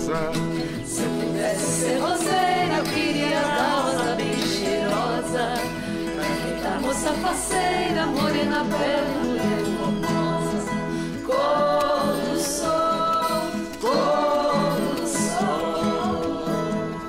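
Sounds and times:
classical guitar playing: 0.0s - 17.0s
person singing: 0.0s - 17.0s.

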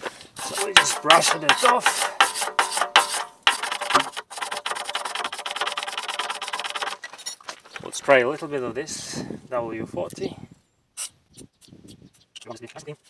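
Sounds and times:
wire brush scrubbing metal: 0.3s - 7.1s.

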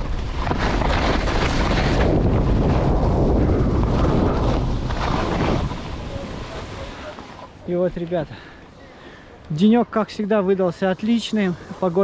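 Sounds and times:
wind buffeting microphone: 0.0s - 7.0s
skis scraping over snow: 0.0s - 8.2s.

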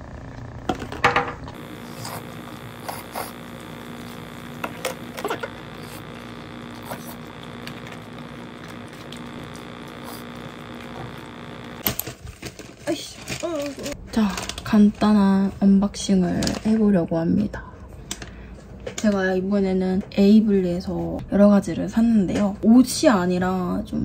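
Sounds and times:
electrical hum: 0.0s - 18.6s.

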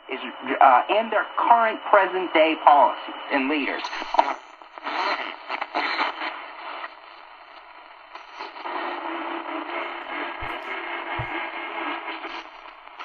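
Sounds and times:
radio static and hiss: 0.0s - 13.0s
low thumps: 10.4s - 11.6s.

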